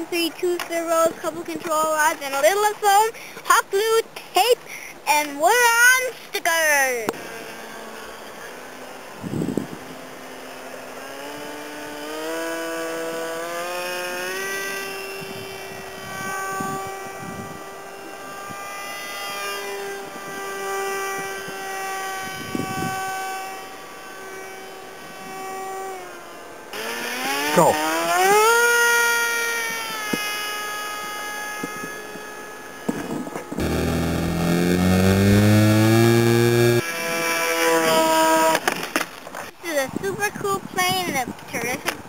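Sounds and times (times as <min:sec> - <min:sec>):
model plane motor whining: 0:07.2 - 0:39.0.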